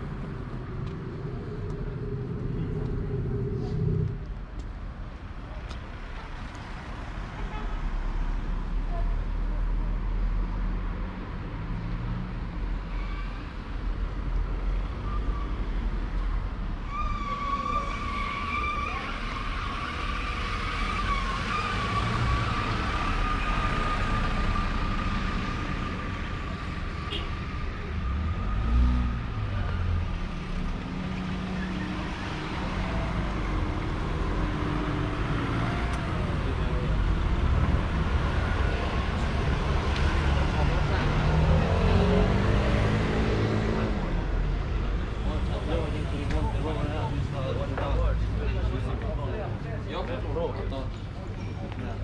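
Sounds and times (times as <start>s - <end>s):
vehicle passing: 0.0s - 4.4s
traffic rumble: 0.0s - 52.0s.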